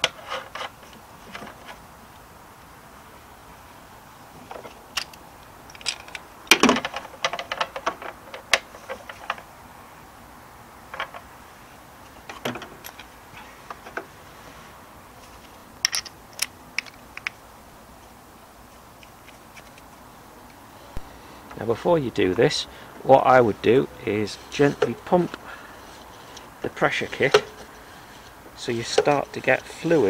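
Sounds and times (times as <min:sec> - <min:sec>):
hard plastic parts clicking: 0:04.5 - 0:09.5.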